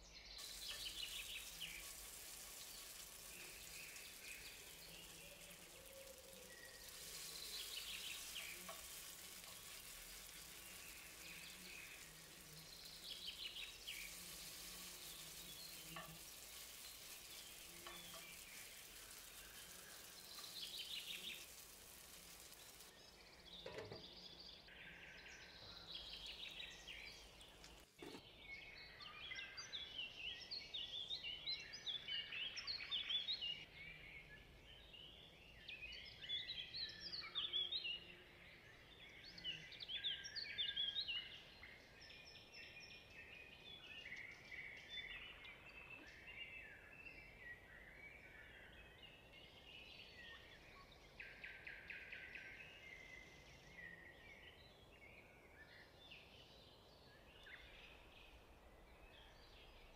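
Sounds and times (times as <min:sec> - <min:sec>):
fritters sizzling in hot oil: 0:00.4 - 0:24.3, 0:25.8 - 0:28.2.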